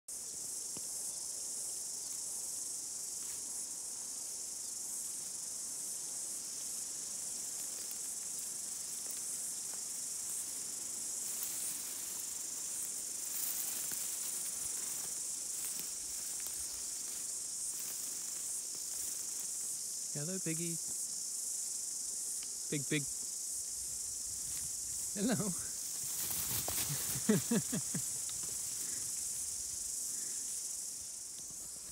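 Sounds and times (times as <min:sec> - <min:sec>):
insects chorus: 0:00.1 - 0:31.9
rustles in grass: 0:01.3 - 0:31.9.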